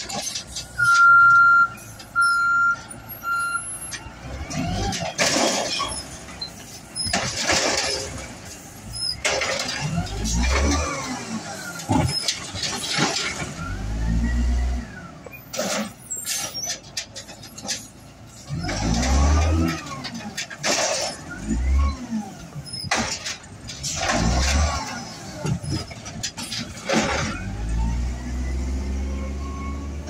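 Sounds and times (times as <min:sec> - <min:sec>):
short beeps: 0:00.8 - 0:03.8
trash cart banging: 0:02.8 - 0:13.8, 0:22.6 - 0:27.7
truck engine revving: 0:07.0 - 0:15.1, 0:18.4 - 0:30.0.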